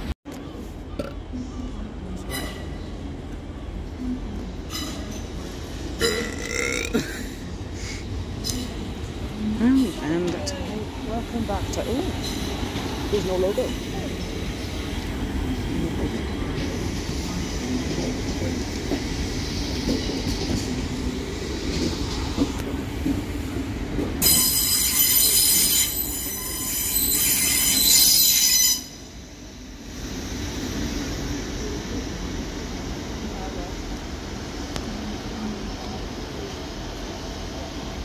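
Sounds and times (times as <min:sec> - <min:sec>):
train rumbling: 0:00.0 - 0:38.0
high-pitched wheel squeal: 0:24.2 - 0:29.0.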